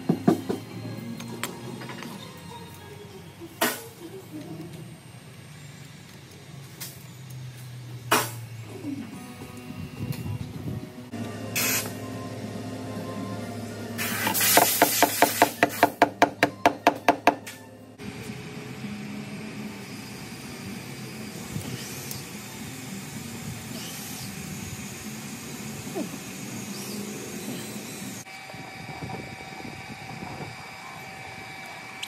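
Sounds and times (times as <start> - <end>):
background music with held tones: 0.0 - 3.6
hiss: 11.6 - 12.0, 14.0 - 15.9.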